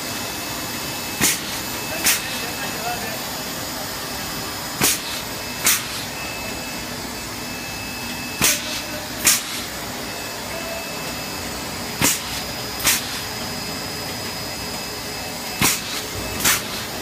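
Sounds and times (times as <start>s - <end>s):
machine running: 0.0s - 17.0s
sharp air hisses: 4.8s - 6.1s.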